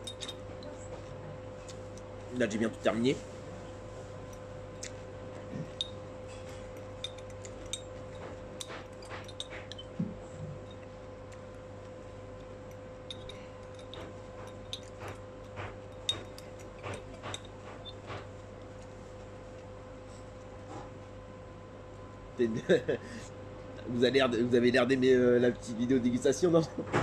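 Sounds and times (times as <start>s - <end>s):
steady low hum: 0.0s - 27.0s
fork clinking against a plate: 5.6s - 9.9s, 12.4s - 18.0s.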